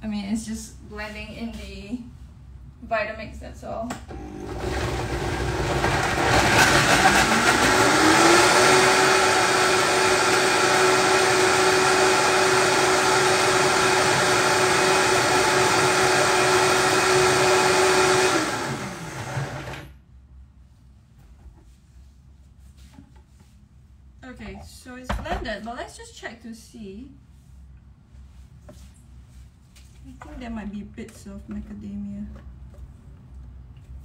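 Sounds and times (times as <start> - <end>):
blender motor running: 4.1 - 19.9.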